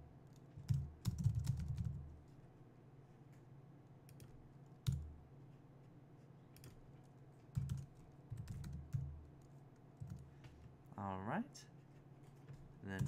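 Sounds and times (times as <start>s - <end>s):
typing on computer keyboard: 0.3s - 2.1s, 4.1s - 5.1s, 6.6s - 6.8s, 7.5s - 10.3s.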